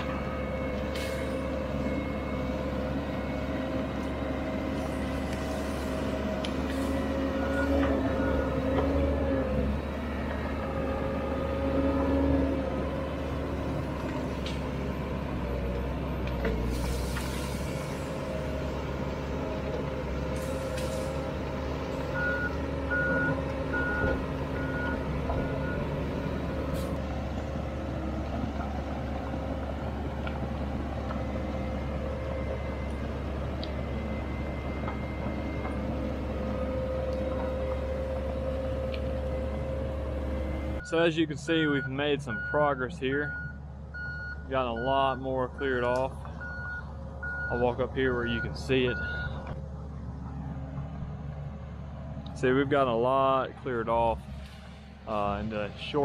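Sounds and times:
diesel engine running under load: 0.0 - 56.0
backup alarm beeps: 22.2 - 25.9, 41.7 - 45.8, 46.4 - 47.6, 48.4 - 49.4.

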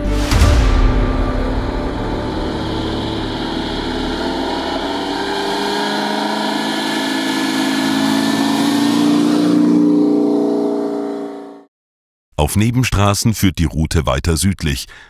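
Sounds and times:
car engine accelerating: 1.1 - 11.7.

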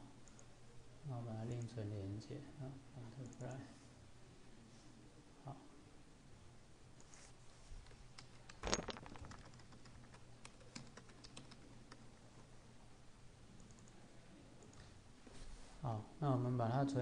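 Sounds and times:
faint steady low hum: 0.0 - 17.0
keyboard typing: 0.2 - 0.5, 8.2 - 12.2, 13.6 - 14.0.

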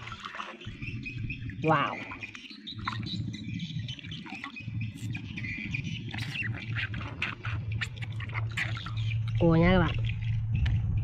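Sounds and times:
water sloshing and dripping: 0.0 - 11.0
birds chirping: 0.4 - 10.8.

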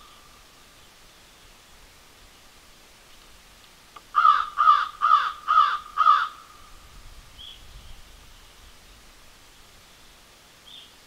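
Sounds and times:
crow calling harshly: 4.1 - 6.7.

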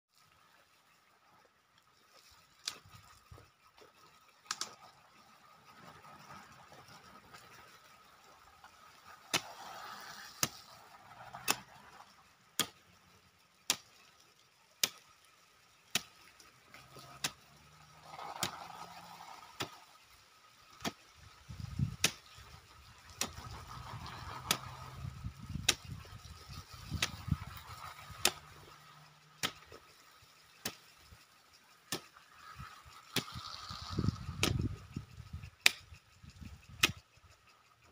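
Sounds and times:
hoe chopping dry soil: 9.1 - 12.0, 12.6 - 12.8, 13.7 - 14.0, 14.8 - 15.1, 15.9 - 16.2, 16.8 - 19.8, 20.7 - 30.0, 30.6 - 30.9, 31.8 - 34.8, 35.6 - 35.9, 36.7 - 37.0.

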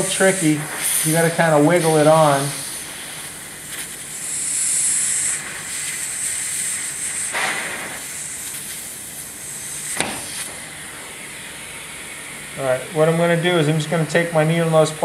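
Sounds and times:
compressed air hissing: 0.0 - 15.0
sharp click: 10.0 - 10.5.

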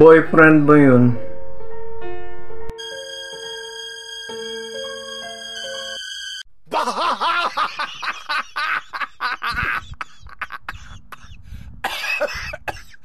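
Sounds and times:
man laughing muffled: 6.7 - 13.0.

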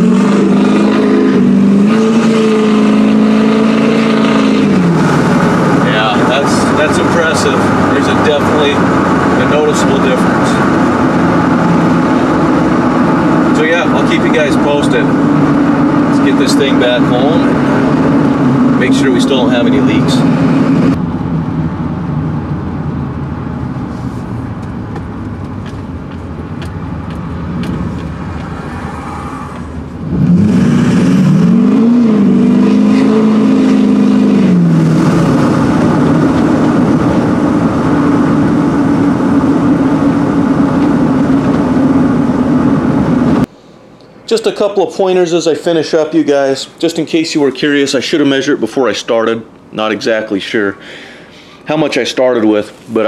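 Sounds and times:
diesel engine hum: 0.0 - 53.0
road noise: 0.0 - 53.0.

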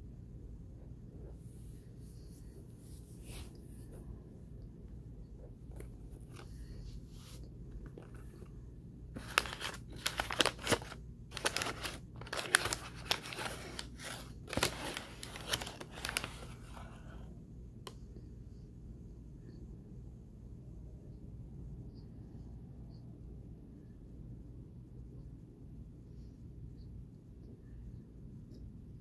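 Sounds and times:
starch and paper crackling: 9.2 - 17.1.

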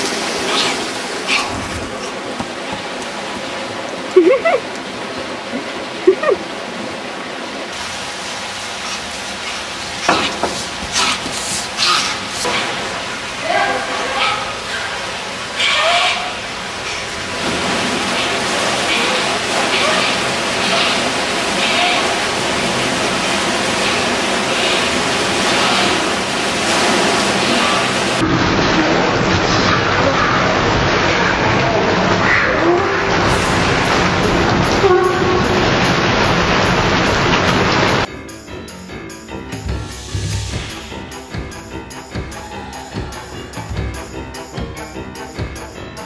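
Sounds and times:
spa jets bubbling water: 16.7 - 38.1
steady rushing noise: 26.1 - 38.1, 39.6 - 41.5.

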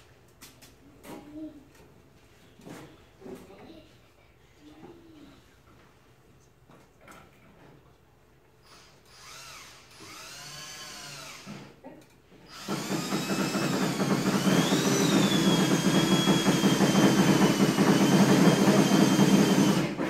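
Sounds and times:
power drill whining: 8.6 - 11.7, 12.5 - 20.0.

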